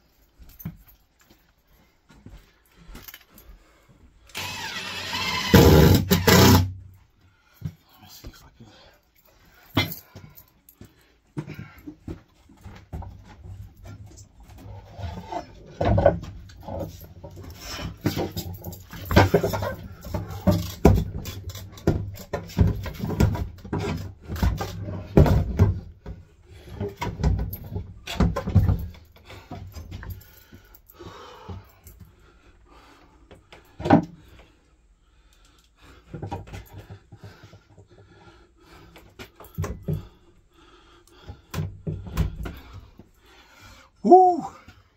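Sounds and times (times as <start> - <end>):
man grunting and breathing hard: 43.6 - 44.9.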